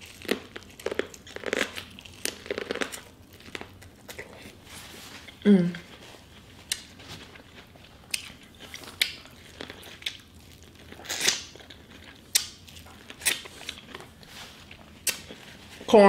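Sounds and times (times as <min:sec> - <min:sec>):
wet crunching bites of corn: 0:08.0 - 0:14.1.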